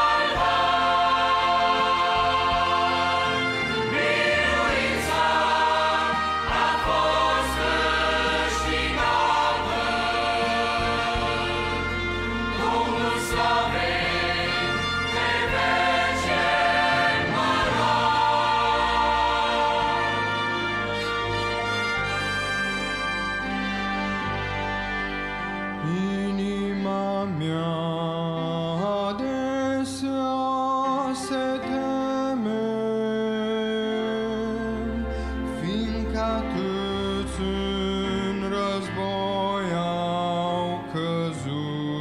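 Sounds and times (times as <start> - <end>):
mixed choir singing a hymn: 0.0 - 22.2.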